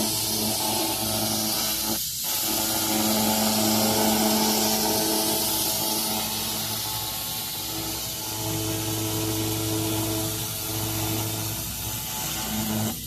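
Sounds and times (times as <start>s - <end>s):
laser cleaning machine humming: 0.0s - 13.0s.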